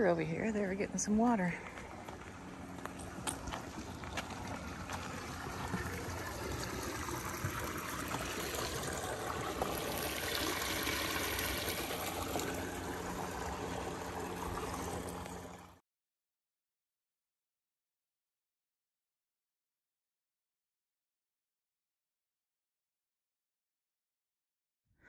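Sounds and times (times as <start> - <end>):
water trickling through a ditch: 0.1 - 15.8.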